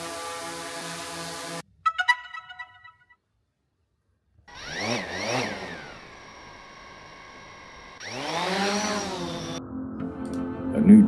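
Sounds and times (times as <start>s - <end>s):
drone motors whining: 4.5s - 9.6s.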